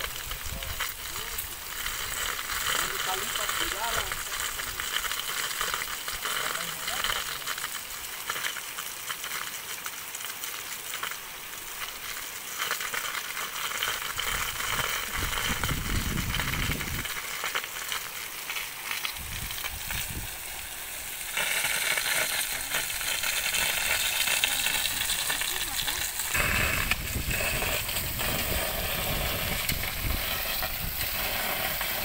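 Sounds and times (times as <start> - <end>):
pressurised water hissing from pipe: 0.0 - 32.0.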